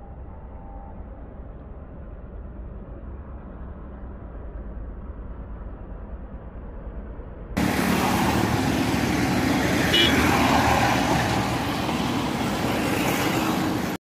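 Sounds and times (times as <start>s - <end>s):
road traffic passing: 2.0s - 14.0s
motorcycles passing: 7.6s - 14.0s
horn toot: 9.9s - 10.4s.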